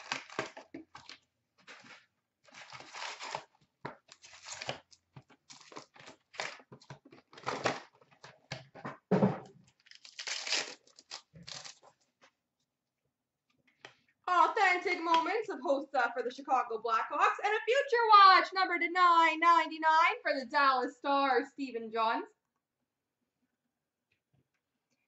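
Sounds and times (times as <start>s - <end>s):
card packaging tearing and rustling: 0.0s - 8.6s, 9.7s - 12.1s.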